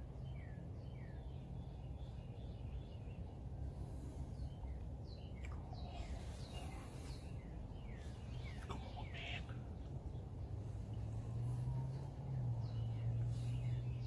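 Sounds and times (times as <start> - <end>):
steady low rumble: 0.0 - 14.0
falling bird chirps: 5.2 - 9.9.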